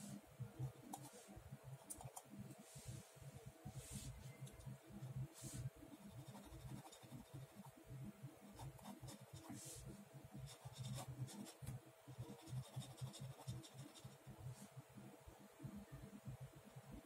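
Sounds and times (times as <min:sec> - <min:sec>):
ballpoint pen scratching on paper: 0:05.9 - 0:07.7, 0:10.5 - 0:11.6, 0:12.2 - 0:14.2.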